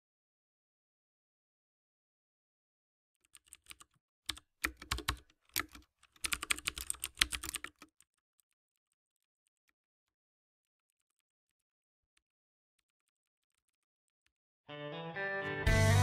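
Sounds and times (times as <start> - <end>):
computer keyboard typing: 3.2 - 9.6.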